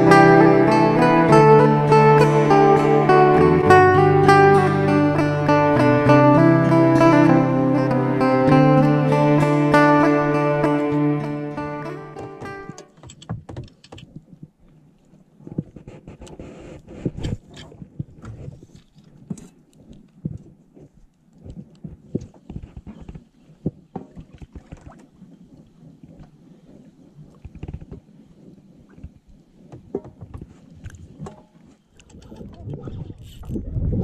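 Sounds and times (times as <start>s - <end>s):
water lapping against a boat: 12.5s - 34.0s
knocks and low thumps: 29.0s - 31.4s.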